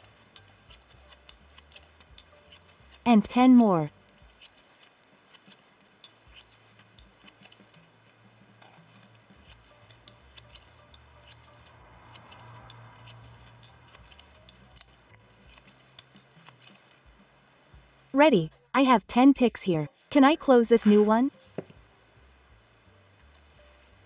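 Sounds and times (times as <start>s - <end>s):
shuttle and thread clicking: 0.0s - 3.1s, 9.0s - 17.0s.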